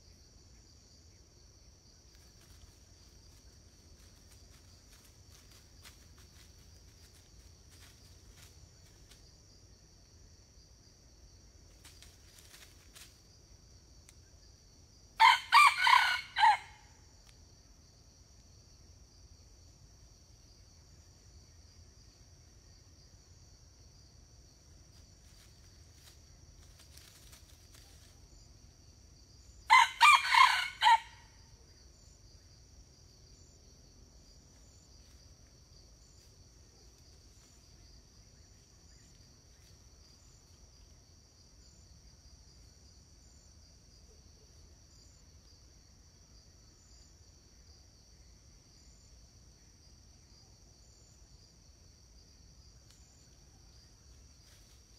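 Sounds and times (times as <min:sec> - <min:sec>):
insects droning: 0:00.0 - 0:54.9
rooster crowing: 0:15.2 - 0:17.0, 0:29.7 - 0:31.4.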